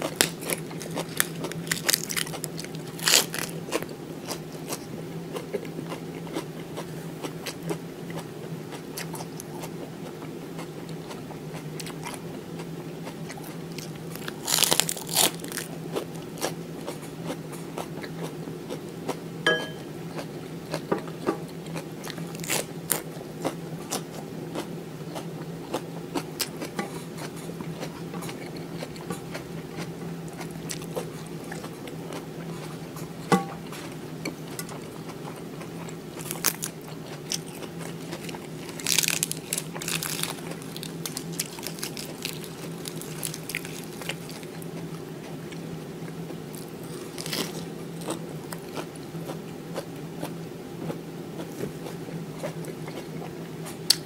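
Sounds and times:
chewing and crunching vegetables: 0:00.0 - 0:54.0
steady low hum: 0:00.0 - 0:54.0
lettuce leaves tearing: 0:00.1 - 0:03.6, 0:14.2 - 0:15.7, 0:38.7 - 0:44.5, 0:46.9 - 0:47.6.

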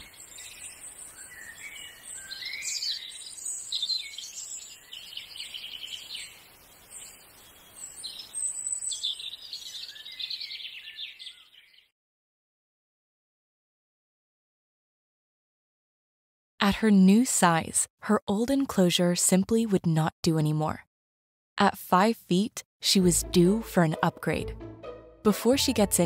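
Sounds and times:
birds chirping and singing: 0:00.0 - 0:11.9.

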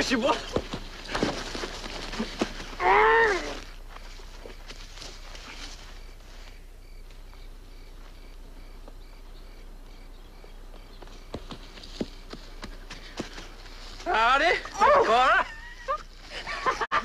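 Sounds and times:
footsteps on dirt path: 0:00.0 - 0:16.8
cricket chirping: 0:03.5 - 0:14.0.

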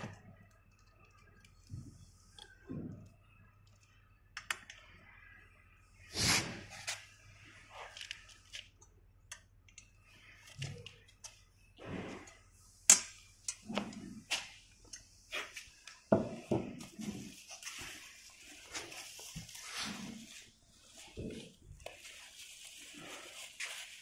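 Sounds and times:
metal parts clicking and tapping: 0:08.0 - 0:11.4, 0:12.9 - 0:14.0
scraping and rustling: 0:13.6 - 0:24.0.

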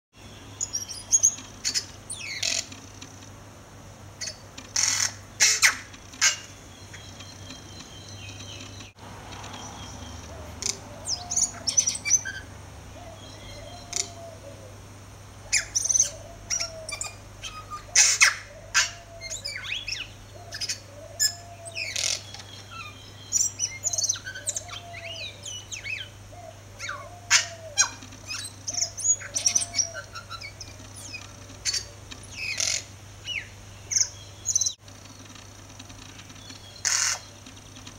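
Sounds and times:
bird singing notes and whistles: 0:26.8 - 0:34.8.

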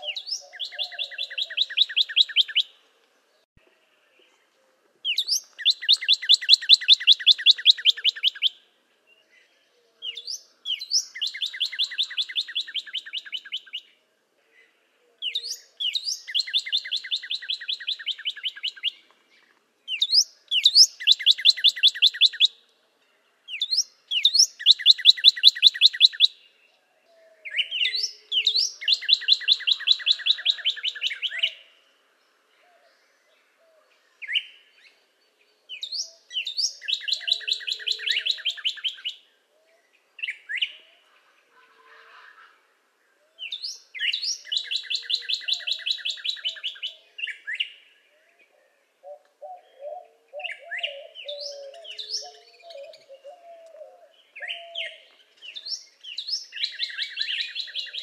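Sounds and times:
bird whistles and trill: 0:00.0 - 0:02.7, 0:05.1 - 0:08.5, 0:10.2 - 0:13.8, 0:15.3 - 0:19.0, 0:19.9 - 0:22.5, 0:23.5 - 0:26.4, 0:27.6 - 0:31.6, 0:35.8 - 0:39.2, 0:43.4 - 0:47.7, 0:55.6 - 0:58.0.

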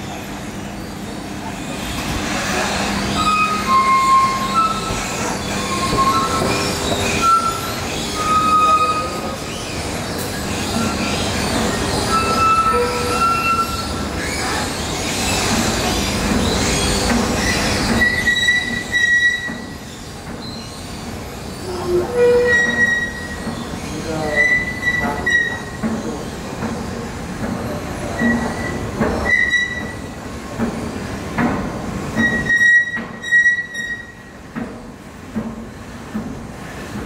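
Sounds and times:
escalator squeaks: 0:02.0 - 0:20.9, 0:21.5 - 0:26.4, 0:28.0 - 0:30.2, 0:32.2 - 0:34.4.

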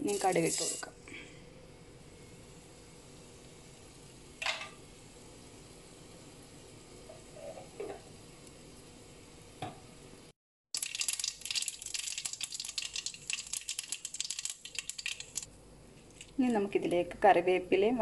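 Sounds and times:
seeds popping in hot oil: 0:10.7 - 0:16.6.

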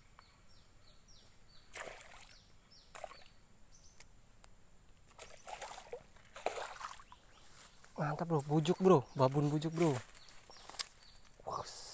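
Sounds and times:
bird chirping: 0:00.0 - 0:11.9
fish splashing at water surface: 0:05.2 - 0:07.0.

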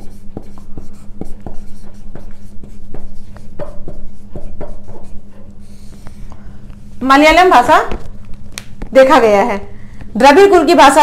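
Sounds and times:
marker pen writing on whiteboard: 0:00.0 - 0:06.3
steady low hum: 0:00.0 - 0:11.0.

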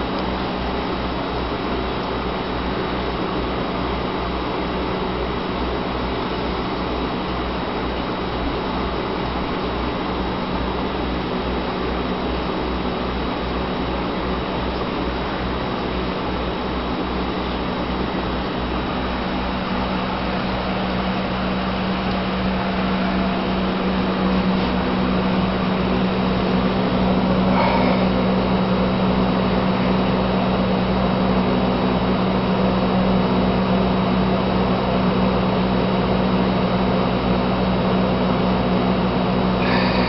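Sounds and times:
aquarium air pump humming: 0:00.0 - 0:40.0
faint high tone: 0:27.4 - 0:28.3.

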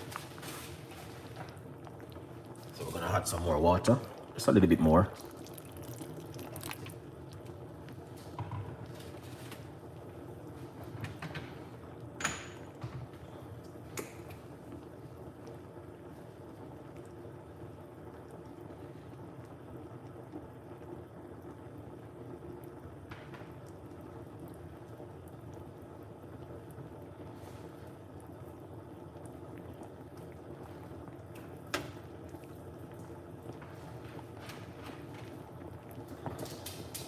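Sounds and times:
soup bubbling: 0:00.0 - 0:37.0.

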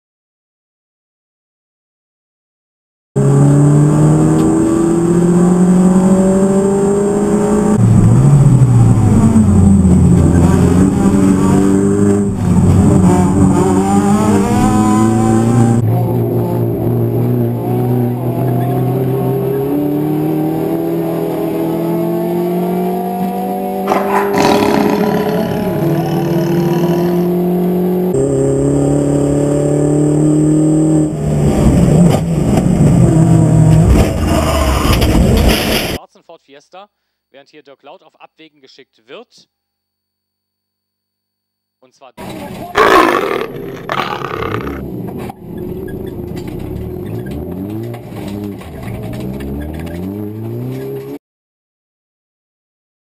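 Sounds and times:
race car engine from cabin: 0:03.2 - 0:35.2, 0:42.2 - 0:51.2.

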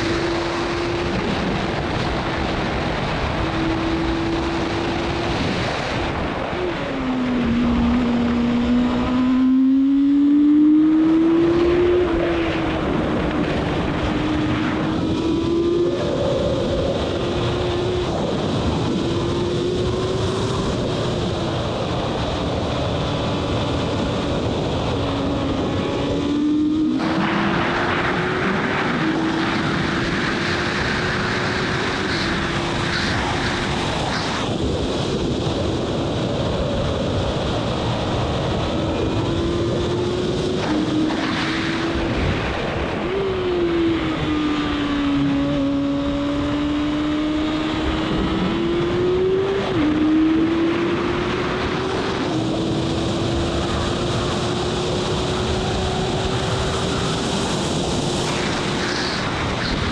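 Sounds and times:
racing car engine: 0:00.0 - 0:59.9
wind rush on microphone: 0:00.0 - 0:59.9.

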